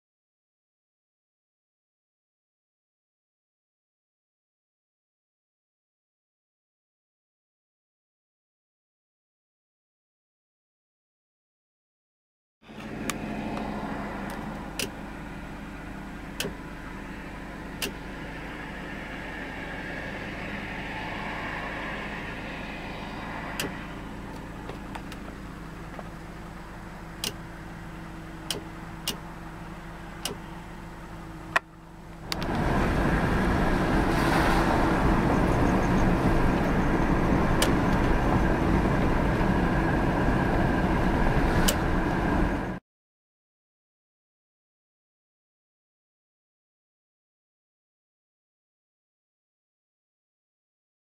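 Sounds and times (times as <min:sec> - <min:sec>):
car engine and road hum: 0:12.6 - 0:42.8
rough engine and road noise: 0:12.6 - 0:42.8.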